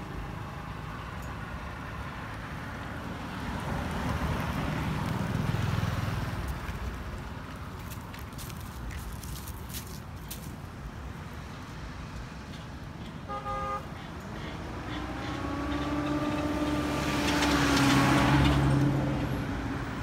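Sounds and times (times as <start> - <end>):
motor vehicle engine passing: 2.6 - 7.2, 14.0 - 20.0
short horn toot: 13.3 - 13.9.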